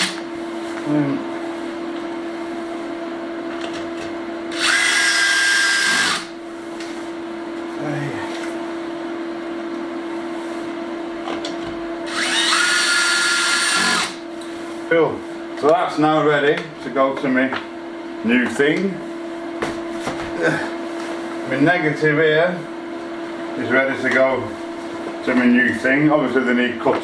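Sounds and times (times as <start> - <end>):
cordless drill whining: 4.5 - 6.3, 12.1 - 14.2.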